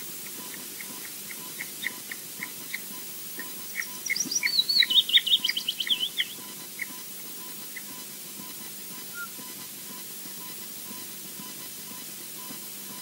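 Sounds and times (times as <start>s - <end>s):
bird chick begging peeps: 0.5s - 8.0s
high bird chirps: 3.4s - 7.0s.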